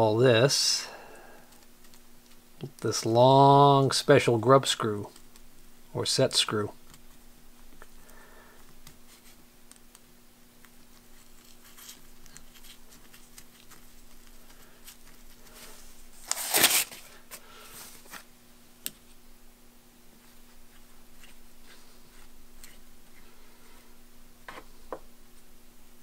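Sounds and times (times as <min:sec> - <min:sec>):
steady low hum: 0:00.0 - 0:26.0
glove pulled off rustle: 0:11.2 - 0:18.3.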